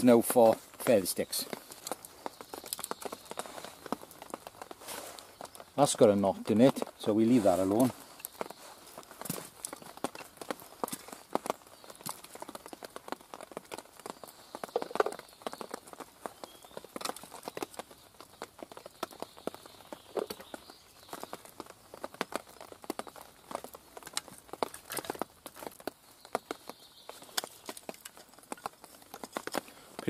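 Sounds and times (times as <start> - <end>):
wooden sticks knocking together: 24.1 - 25.7.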